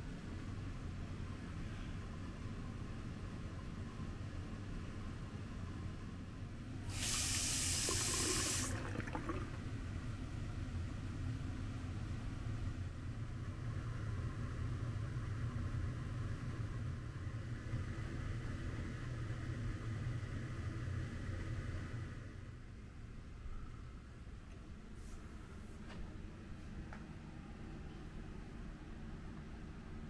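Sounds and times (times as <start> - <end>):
tap water splashing into sink: 6.9 - 9.6.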